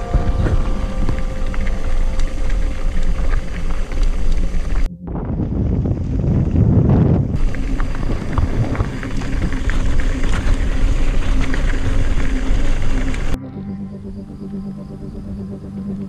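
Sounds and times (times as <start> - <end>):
soft music: 0.0 - 5.2, 7.4 - 16.0
tyres on loose gravel: 0.0 - 13.4
wind rumbling on microphone: 0.0 - 16.0
bike clicks and rattles: 5.6 - 13.4.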